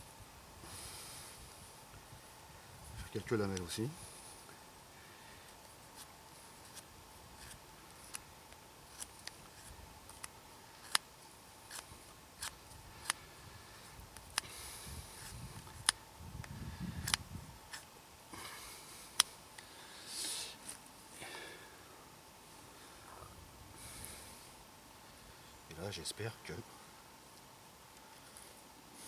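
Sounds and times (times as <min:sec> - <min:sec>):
knife shaving wood: 0:05.9 - 0:08.3, 0:11.6 - 0:13.3.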